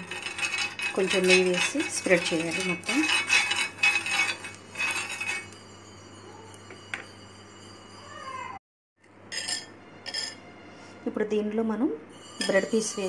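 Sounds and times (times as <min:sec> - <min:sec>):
steel spoon scraping iron pan: 0:00.0 - 0:05.7, 0:09.3 - 0:10.4.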